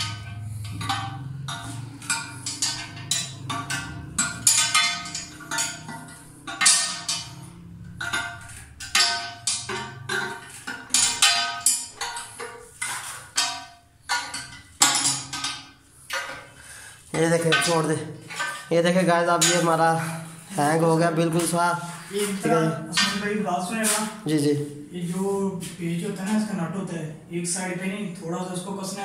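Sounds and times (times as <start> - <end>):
wrench clinking on metal nuts: 0.0 - 16.4.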